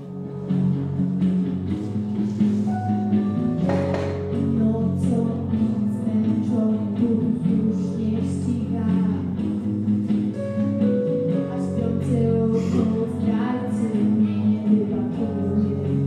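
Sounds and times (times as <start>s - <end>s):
woman singing: 4.2s - 9.5s, 11.3s - 16.0s.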